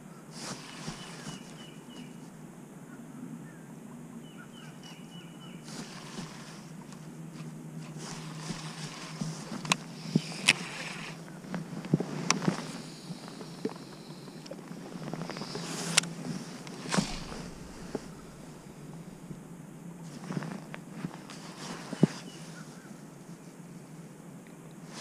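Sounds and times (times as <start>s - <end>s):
fishing rod and reel rustling: 0.4s - 2.2s, 5.7s - 22.3s
bird chirping: 0.7s - 2.3s, 3.4s - 5.7s.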